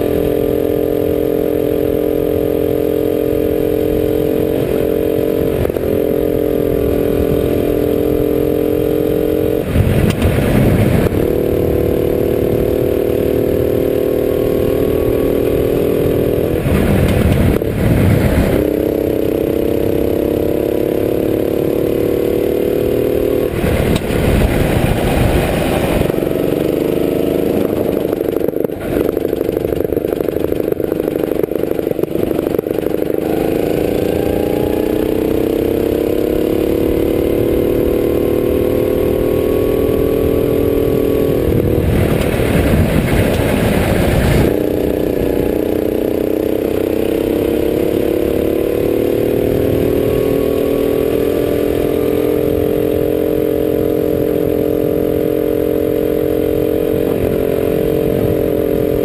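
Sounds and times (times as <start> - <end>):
kart engine running hard: 0.0 - 59.0
rushing noise: 23.5 - 26.4.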